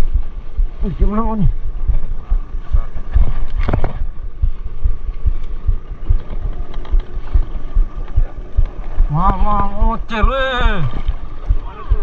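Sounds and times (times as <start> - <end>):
waves slapping boat hull: 0.2 - 12.0.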